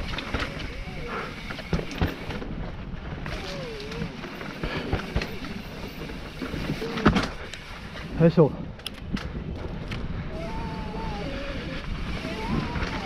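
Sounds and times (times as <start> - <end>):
bike clattering over rocks: 0.0 - 2.6
wind and tyre rush: 0.0 - 13.0.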